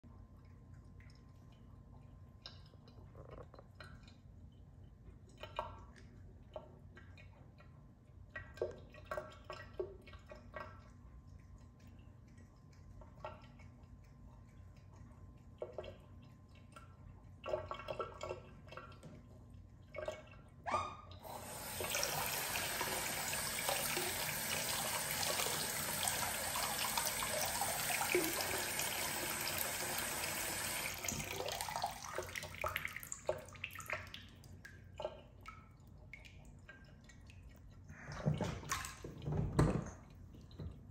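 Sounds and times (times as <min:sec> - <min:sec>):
bath water splashing and dripping: 0:05.3 - 0:40.9
tap water running into bathtub: 0:21.1 - 0:40.9.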